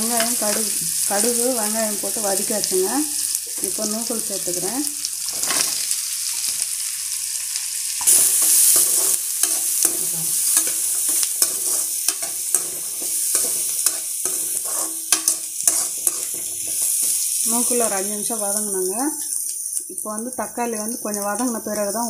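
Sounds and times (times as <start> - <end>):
vegetables sizzling in oil: 0.0 - 22.0
metal spatula scraping and tapping pan: 8.0 - 17.2.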